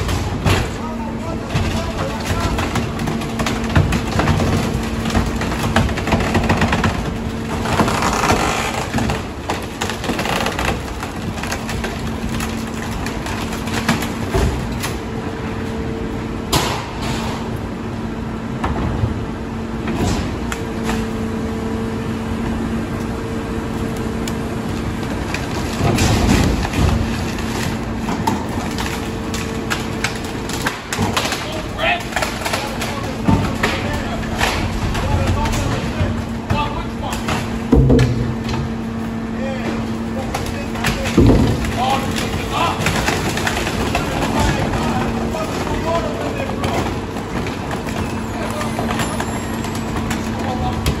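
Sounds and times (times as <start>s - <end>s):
debris clattering and cracking: 0.0s - 15.1s, 23.9s - 51.0s
garbage truck humming: 0.0s - 51.0s.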